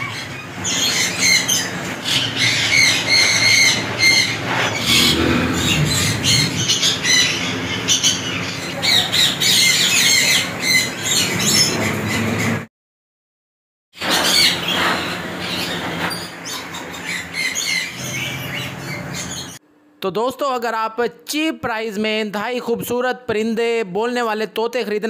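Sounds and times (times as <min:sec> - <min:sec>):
parrots squawking and chirping: 0:00.0 - 0:12.7, 0:14.0 - 0:19.6
steady low hum: 0:00.2 - 0:12.6.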